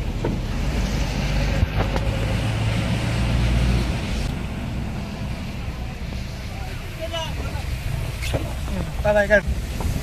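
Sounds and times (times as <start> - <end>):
vehicle driving on wet road: 0.0 - 10.0.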